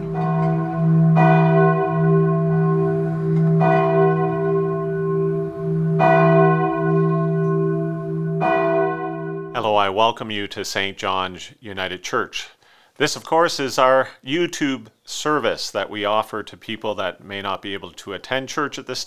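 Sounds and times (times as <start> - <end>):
church bell tolling: 0.0 - 9.9.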